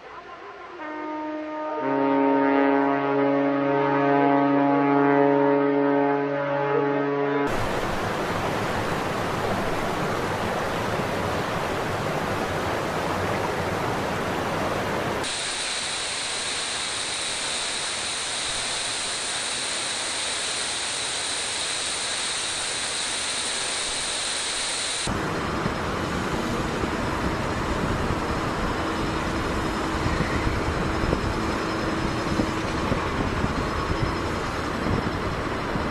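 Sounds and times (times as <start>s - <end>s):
ship's horn: 0.0s - 7.6s
water cannons spraying: 15.2s - 25.1s.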